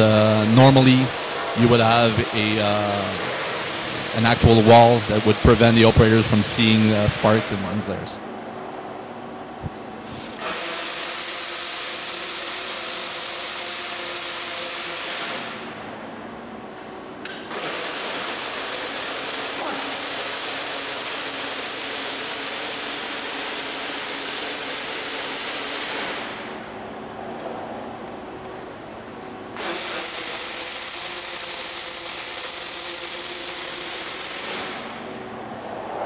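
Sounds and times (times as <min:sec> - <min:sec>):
welding arc hissing: 0:00.0 - 0:07.5, 0:10.0 - 0:15.4, 0:17.5 - 0:26.2, 0:29.6 - 0:35.1
faint machine hum: 0:00.0 - 0:10.5, 0:18.2 - 0:29.6, 0:33.0 - 0:36.0.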